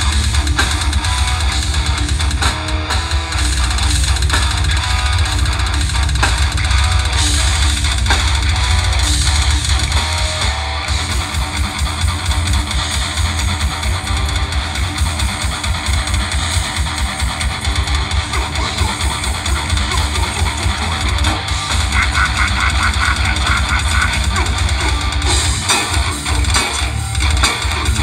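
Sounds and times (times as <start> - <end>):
death metal band playing live: 0.0 - 28.0.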